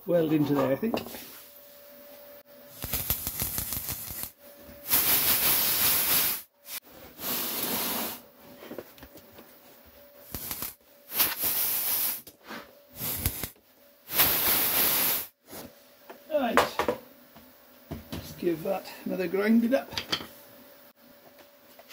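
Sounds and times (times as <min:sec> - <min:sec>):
welding arc crackling: 0:02.7 - 0:06.8, 0:10.2 - 0:12.3, 0:13.0 - 0:15.4.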